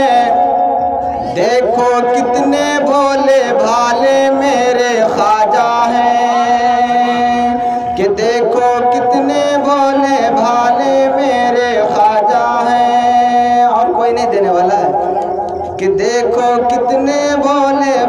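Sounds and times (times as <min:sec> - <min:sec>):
man singing over loudspeaker: 0:00.0 - 0:18.0.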